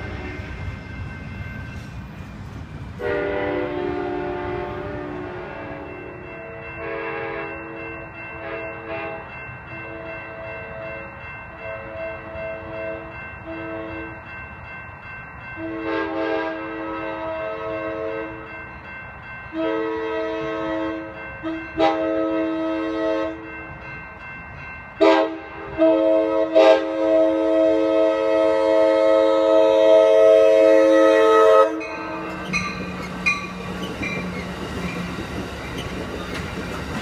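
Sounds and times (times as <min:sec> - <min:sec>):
crossing bell ringing: 0:00.0 - 0:37.0
train air horn blasts: 0:03.0 - 0:07.8, 0:08.4 - 0:09.3, 0:11.7 - 0:14.1, 0:15.6 - 0:18.5, 0:19.5 - 0:23.4, 0:25.0 - 0:33.7.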